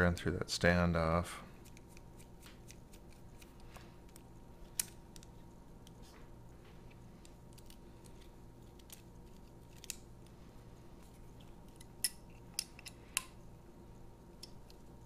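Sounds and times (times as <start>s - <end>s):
faint steady hum: 0.0s - 15.0s
small parts clicking together: 7.2s - 10.1s.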